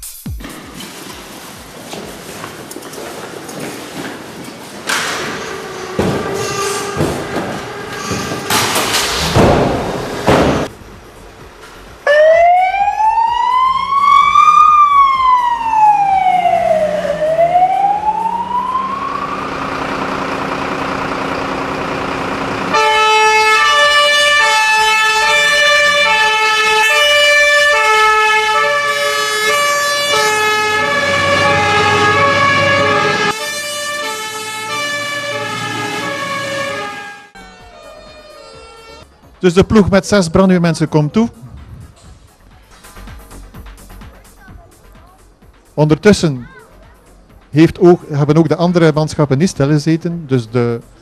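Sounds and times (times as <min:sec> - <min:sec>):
two-tone sirens: 0:04.8 - 0:09.1, 0:12.0 - 0:39.6
wailing siren: 0:04.9 - 0:09.0, 0:12.0 - 0:39.1.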